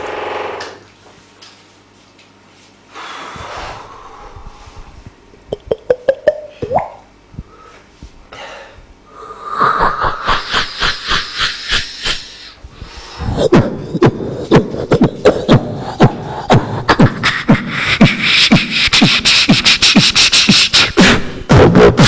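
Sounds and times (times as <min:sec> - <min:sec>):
person beatboxing into a microphone: 0:09.4 - 0:22.0.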